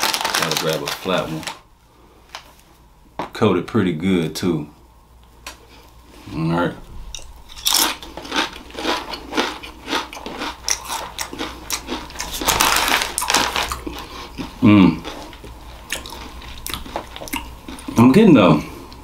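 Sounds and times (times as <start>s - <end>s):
crunchy chip chewing: 0.0s - 1.6s, 7.2s - 18.0s
person humming: 14.6s - 15.0s.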